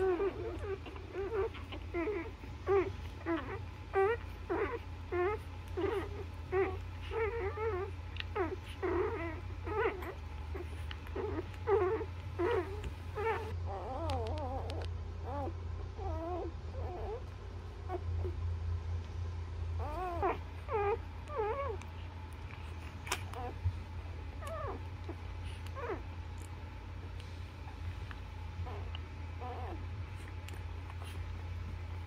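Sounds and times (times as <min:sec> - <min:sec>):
puppies squeaking and whimpering: 0:00.0 - 0:18.4, 0:19.8 - 0:32.0
steady low hum: 0:00.0 - 0:32.0.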